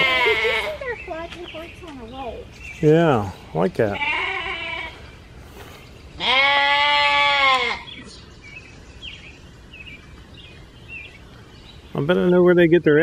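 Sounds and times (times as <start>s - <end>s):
goat bleating: 0.0s - 0.8s, 3.8s - 5.0s, 6.2s - 8.0s.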